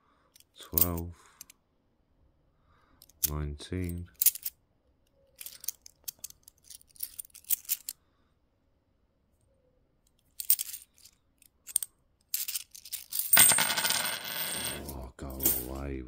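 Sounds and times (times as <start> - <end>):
coins clinking: 10.4 - 15.9
coins tumbling clatter: 12.3 - 15.8.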